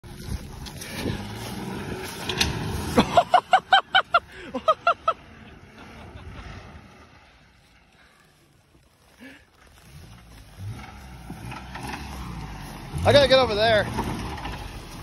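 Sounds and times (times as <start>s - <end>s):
car engine with rod knock: 13.8s - 14.6s.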